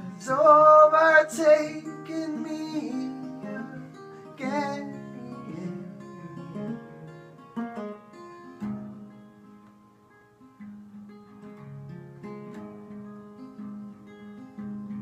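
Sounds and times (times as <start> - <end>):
man singing with vibrato: 0.0 - 7.0
acoustic guitar picked and strummed: 0.0 - 15.0.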